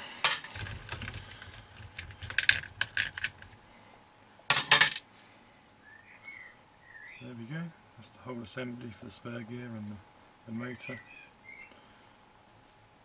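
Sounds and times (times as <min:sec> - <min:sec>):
plastic and metal parts clicking: 0:00.3 - 0:03.6.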